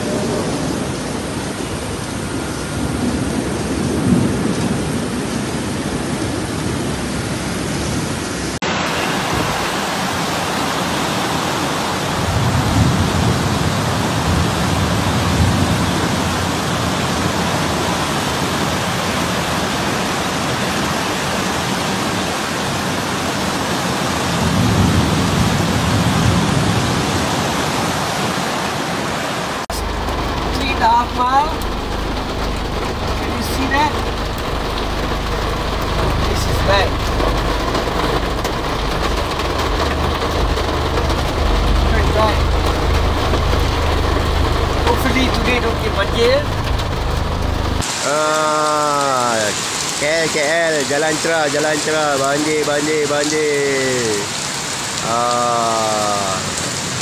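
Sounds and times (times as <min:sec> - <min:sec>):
heavy rain hissing: 0:00.0 - 0:57.0
low rumble: 0:29.7 - 0:47.8.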